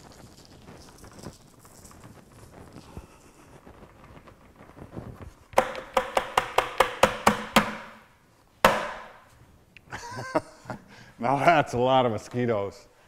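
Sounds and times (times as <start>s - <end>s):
faint patter of mosquitoes: 0.0s - 5.5s
hollow knocks on plastic bucket: 5.6s - 8.1s, 8.7s - 9.2s.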